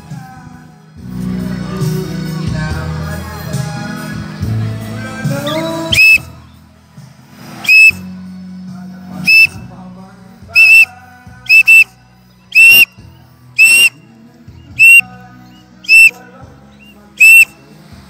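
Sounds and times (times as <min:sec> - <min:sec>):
high whistle blasts: 0:05.5 - 0:06.3, 0:07.7 - 0:08.1, 0:09.3 - 0:09.6, 0:10.6 - 0:10.9, 0:11.5 - 0:11.9, 0:12.6 - 0:12.9, 0:13.6 - 0:14.0, 0:14.8 - 0:15.0, 0:15.9 - 0:16.2, 0:17.2 - 0:17.5.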